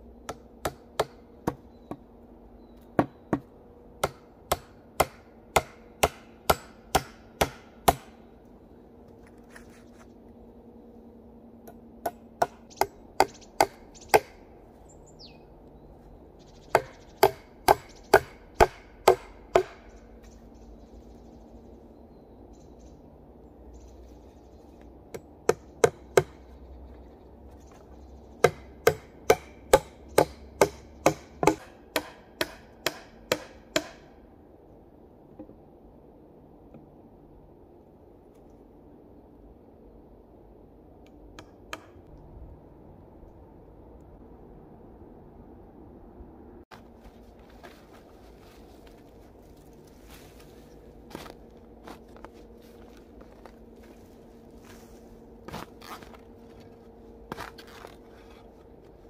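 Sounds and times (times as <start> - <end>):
hatchet striking wooden pole: 0.3 - 2.0, 3.0 - 8.2, 12.0 - 14.4, 16.7 - 19.9, 25.1 - 26.4, 28.4 - 34.2, 41.4 - 42.0.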